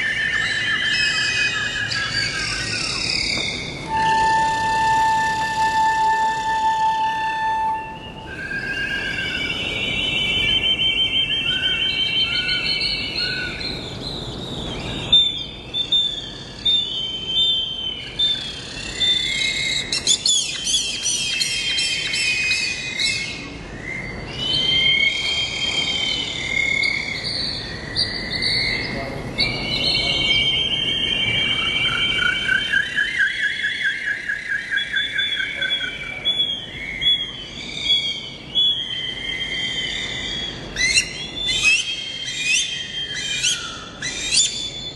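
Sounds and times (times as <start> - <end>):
rapid bird trills: 0.0 - 7.2, 7.8 - 44.9
birds chirping and singing: 0.0 - 44.9.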